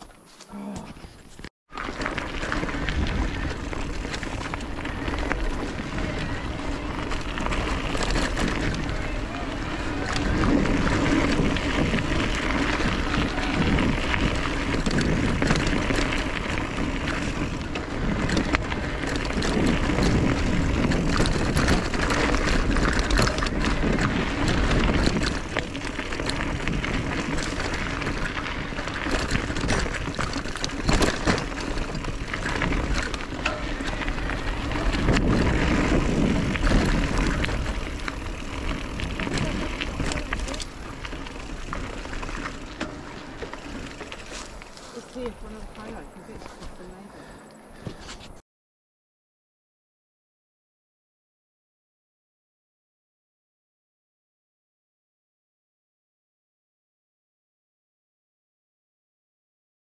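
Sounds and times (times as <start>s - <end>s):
bike tyres rolling on gravel: 0.0s - 48.4s
wind noise on microphone: 0.9s - 48.4s
bike rattling and knocking: 1.3s - 48.2s.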